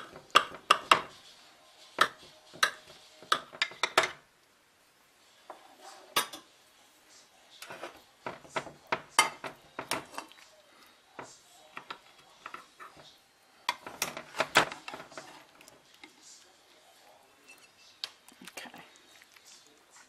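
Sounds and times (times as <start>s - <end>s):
knife scraping baking dish: 7.6s - 10.3s
metal spatula scraping dish: 7.6s - 10.3s.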